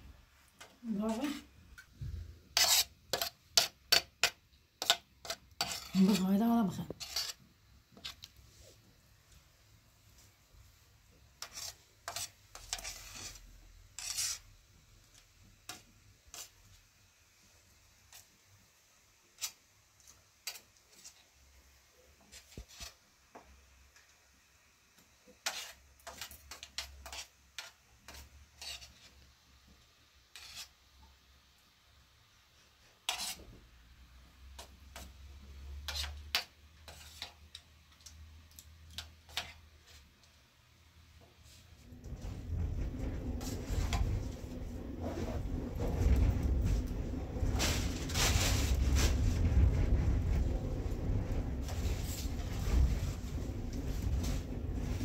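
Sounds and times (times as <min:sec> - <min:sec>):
metal spoons scraping metal tray: 0:02.5 - 0:07.4, 0:11.4 - 0:14.5, 0:25.4 - 0:29.1, 0:30.3 - 0:30.8, 0:33.0 - 0:33.4, 0:35.8 - 0:37.6, 0:38.9 - 0:40.0.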